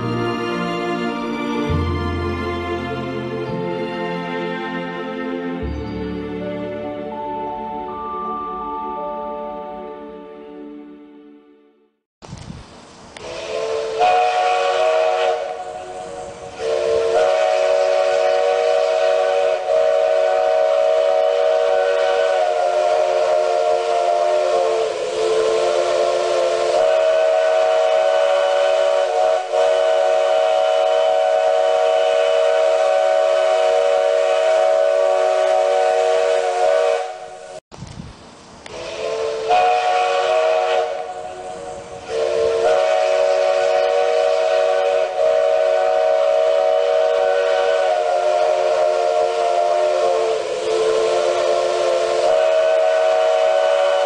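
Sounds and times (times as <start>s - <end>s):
steam hiss: 12.2s - 54.0s
steam locomotive chime whistle: 13.2s - 37.6s, 38.7s - 54.0s.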